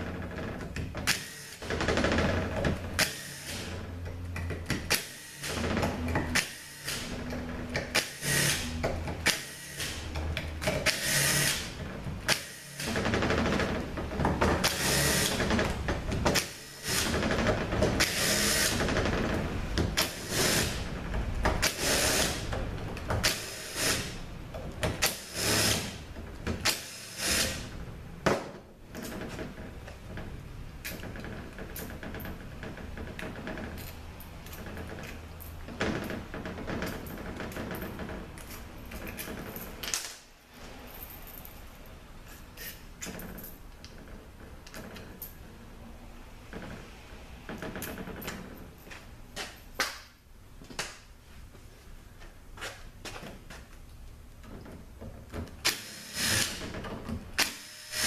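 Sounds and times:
cordless drill spinning bolts: 26.7 - 27.6, 55.6 - 56.8, 57.4 - 58.0
metal parts clinking: 40.8 - 43.9.

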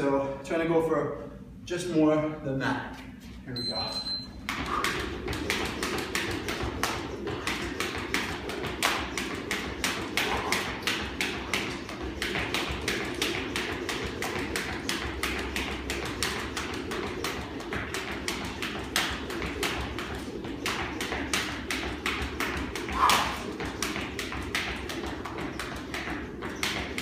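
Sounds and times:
beaded jump rope slapping floor: 4.3 - 27.0.

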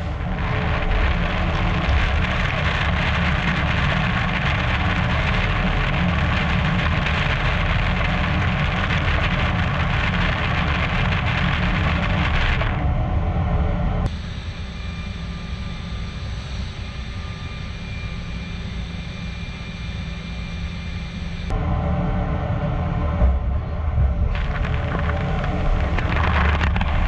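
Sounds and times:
lathe low rumble: 0.0 - 27.0.

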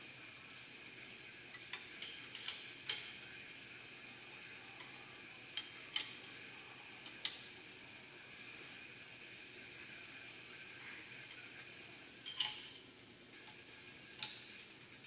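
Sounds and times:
steady background hum: 0.0 - 15.0
metal tools clinking on steel: 12.2 - 12.8.

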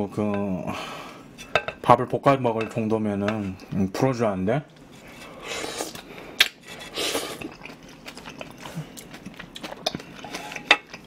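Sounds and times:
wet chewing sounds: 5.6 - 11.0.

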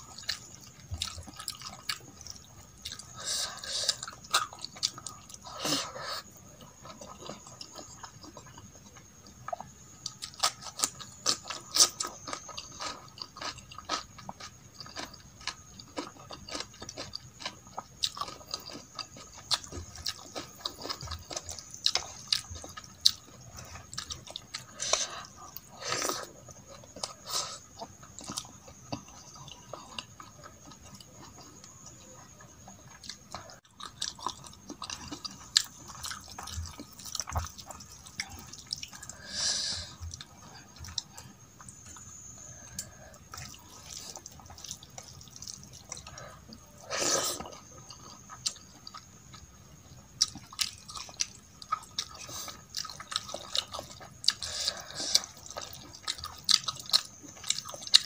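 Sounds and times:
wet chewing and smacking: 0.0 - 3.2, 6.5 - 39.2, 40.0 - 58.0.

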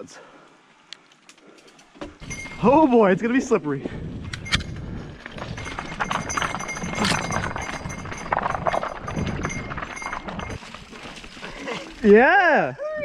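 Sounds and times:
bike knocking on rocks: 4.7 - 11.5.

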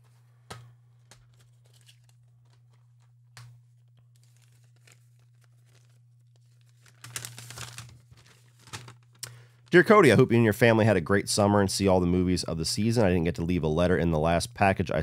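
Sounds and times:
paper rustling and crinkling: 0.0 - 10.2.

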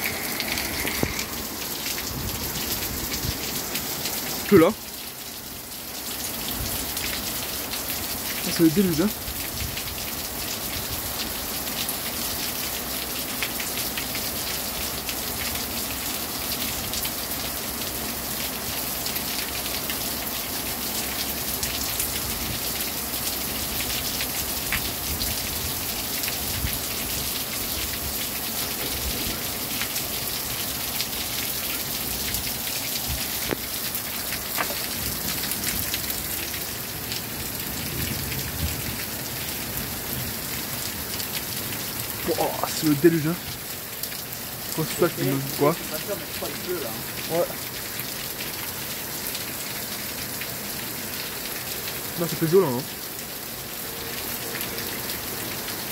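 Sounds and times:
heavy rain hissing: 0.0 - 9.3, 20.0 - 50.0
raindrops ticking: 0.0 - 53.5.

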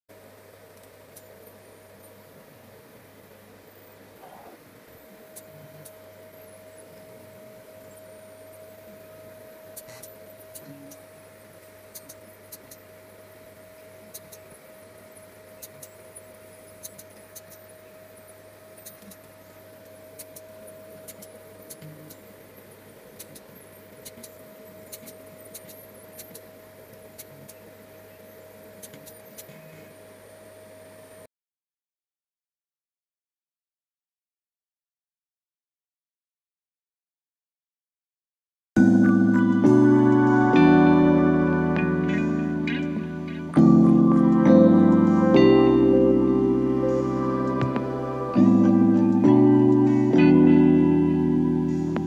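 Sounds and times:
light clicks and ticks: 9.7 - 12.9, 16.8 - 17.7, 18.8 - 22.3, 23.2 - 27.6.

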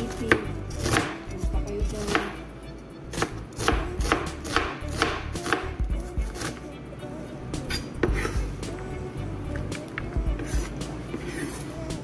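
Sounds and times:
knife chopping on plastic board: 0.3 - 1.2, 3.2 - 5.6.

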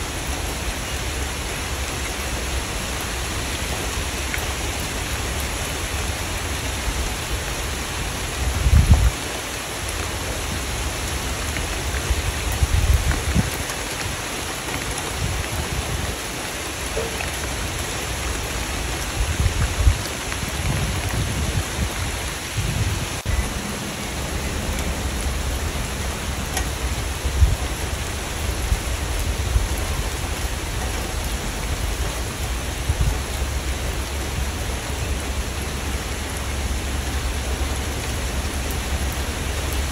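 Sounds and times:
steady rain falling: 0.0 - 39.9
low rumbles: 19.2 - 39.9.

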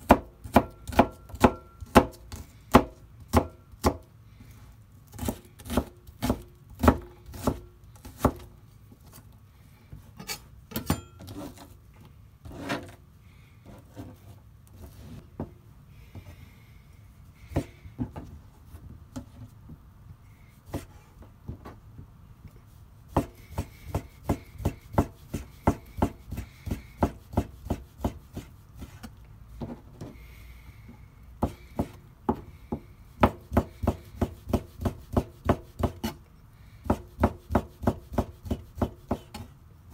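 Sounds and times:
knife chopping on cutting board: 0.0 - 4.0, 5.2 - 8.5, 23.1 - 29.0, 33.2 - 36.2, 36.8 - 39.4.

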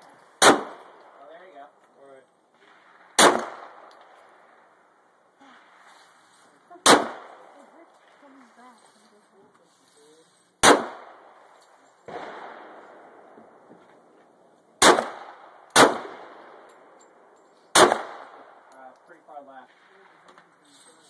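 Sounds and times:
fainter gunshot: 0.4 - 0.8, 2.8 - 3.8, 6.8 - 7.4, 10.6 - 11.2, 14.8 - 16.2, 17.7 - 18.4
pistol shots echoing: 0.4 - 1.2, 2.7 - 4.8, 6.8 - 7.6, 10.6 - 11.4, 12.1 - 13.3, 14.8 - 17.0, 17.7 - 18.7.

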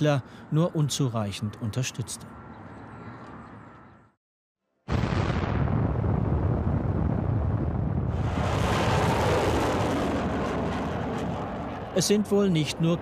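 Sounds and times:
rocket engine roar: 4.9 - 13.0.

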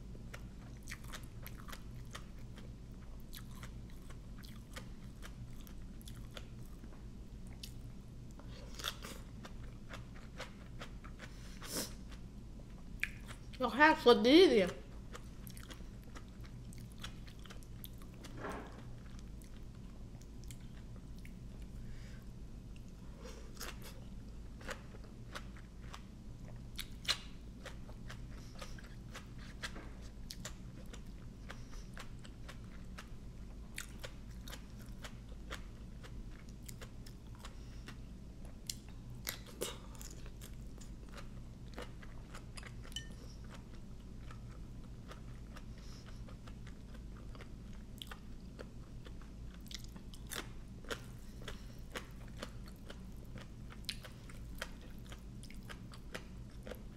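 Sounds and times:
steady low hum: 0.0 - 56.9
crisp chewing and crunching: 0.2 - 6.8, 22.8 - 56.9.

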